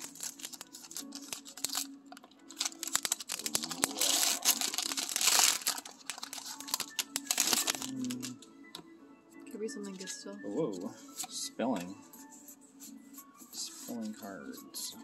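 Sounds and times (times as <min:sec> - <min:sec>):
foil wrapper tearing and crinkling: 0:00.0 - 0:08.4.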